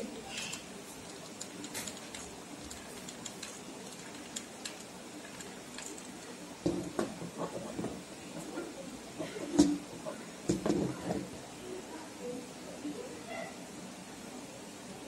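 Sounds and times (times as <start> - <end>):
steady background hiss: 0.0 - 15.0
hands clicking and tapping beads: 0.4 - 6.4.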